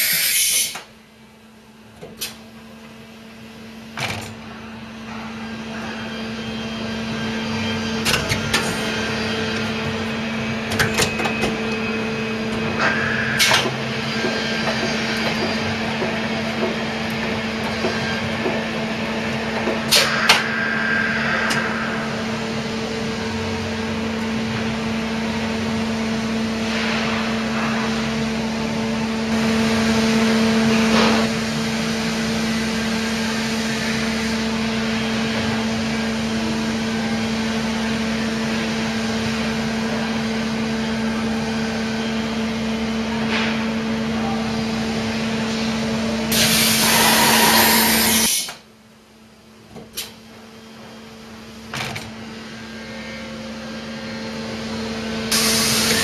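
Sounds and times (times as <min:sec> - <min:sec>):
machine humming: 0:03.3 - 0:30.9.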